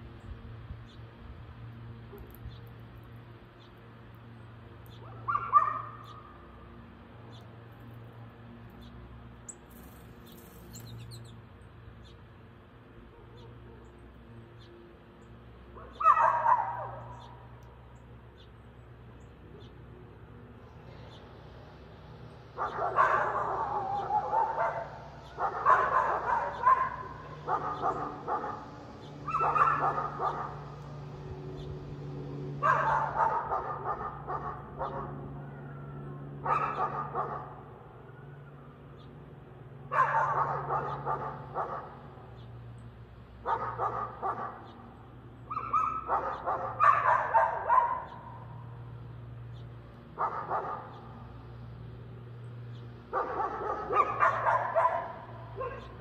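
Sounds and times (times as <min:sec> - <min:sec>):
low motor hum: 0:00.0 - 0:56.0
dog barking: 0:05.0 - 0:06.0, 0:13.1 - 0:13.9, 0:15.8 - 0:17.3, 0:22.6 - 0:28.7, 0:29.3 - 0:30.6, 0:32.6 - 0:35.2, 0:36.4 - 0:37.6, 0:39.9 - 0:42.0, 0:43.4 - 0:44.7, 0:45.5 - 0:48.4, 0:50.2 - 0:51.0, 0:53.1 - 0:56.0.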